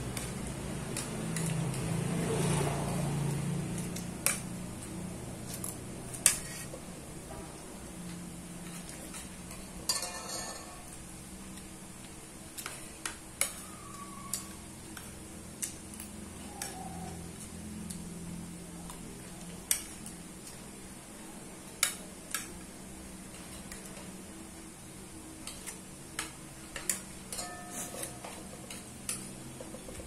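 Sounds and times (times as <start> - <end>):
spoon clinking on a plate: 26.8 - 29.2.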